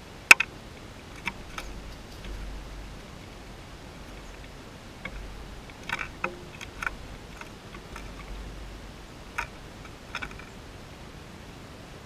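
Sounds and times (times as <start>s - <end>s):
bird pecking short sharp ticks: 1.2s - 10.5s.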